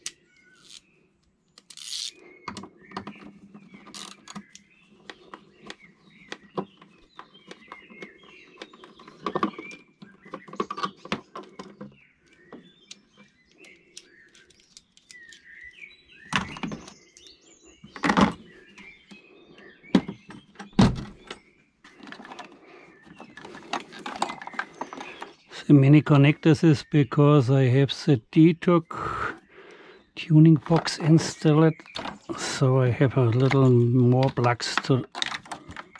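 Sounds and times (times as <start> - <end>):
birds chirping: 0.0 - 35.9
plastic clicks and rattles: 1.5 - 15.6, 20.3 - 25.4, 30.6 - 35.9.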